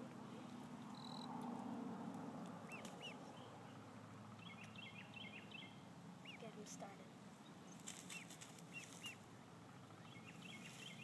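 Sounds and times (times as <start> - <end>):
low background hum: 0.0 - 11.0
duckling peeping: 2.6 - 3.6, 4.4 - 6.6, 7.4 - 9.3, 10.0 - 11.0.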